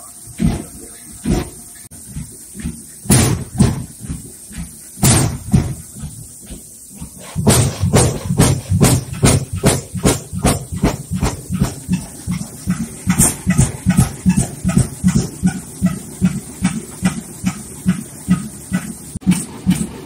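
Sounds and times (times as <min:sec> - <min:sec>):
stationary oil engine firing: 0:00.1 - 0:20.0.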